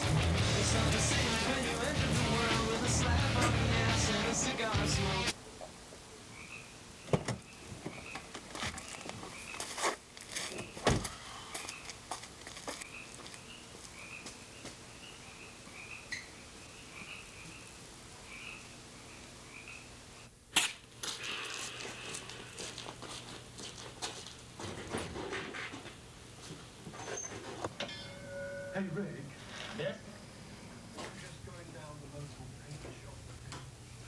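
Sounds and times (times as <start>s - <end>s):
frogs croaking: 6.2s - 8.3s, 12.8s - 20.3s.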